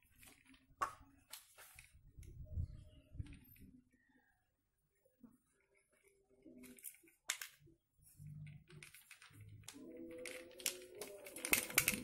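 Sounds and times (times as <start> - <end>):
plastic pipe fittings clicking: 5.5 - 12.0.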